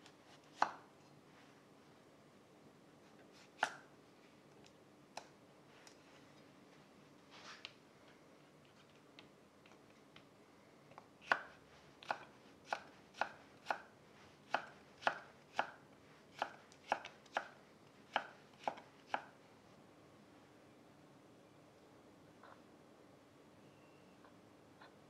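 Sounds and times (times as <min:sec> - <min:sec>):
soft shuffle of carrot slices: 0:00.0 - 0:02.1, 0:03.0 - 0:04.6, 0:05.6 - 0:10.1, 0:11.5 - 0:15.0
knife cutting carrot on wooden board: 0:00.2 - 0:00.8, 0:11.2 - 0:13.9, 0:14.5 - 0:19.3.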